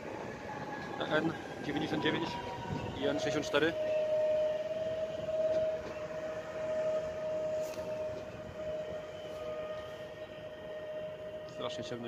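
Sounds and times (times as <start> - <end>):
electric train passing: 0.0 - 12.0
high whine of train: 0.0 - 12.0.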